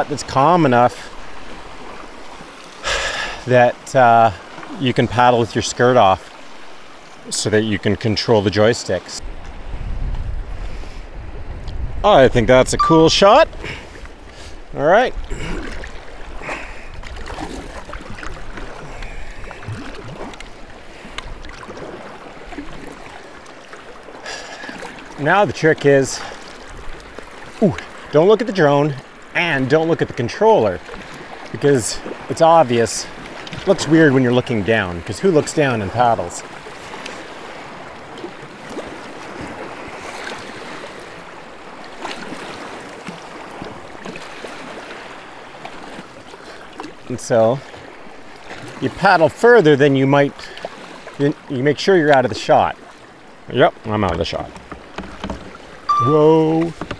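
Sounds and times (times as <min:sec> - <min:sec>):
water splashing around kayak: 0:00.0 - 0:56.9
small clicks and drips: 0:16.6 - 0:21.8, 0:53.8 - 0:55.9.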